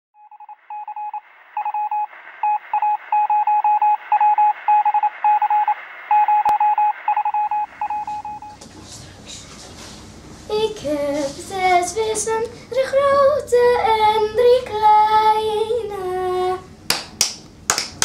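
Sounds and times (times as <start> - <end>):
morse code beeping tone: 0.2 - 8.6
radio static hiss: 1.1 - 10.3.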